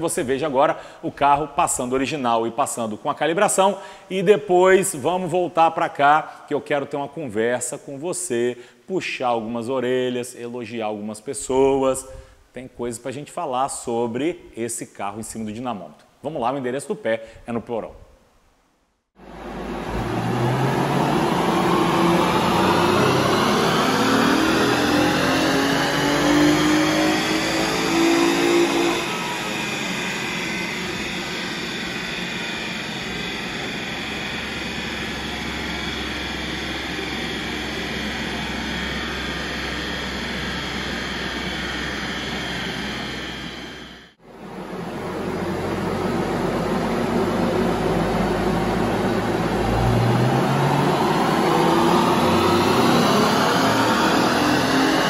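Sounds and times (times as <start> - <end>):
dyno rollers whirring down: 19.2 - 55.0
car engine revving: 19.3 - 44.0, 45.7 - 55.0.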